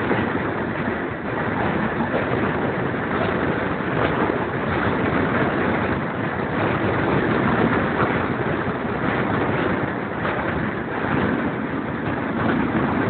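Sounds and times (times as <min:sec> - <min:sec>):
steam train running: 0:00.0 - 0:13.0
wind rushing over microphone: 0:00.0 - 0:13.0.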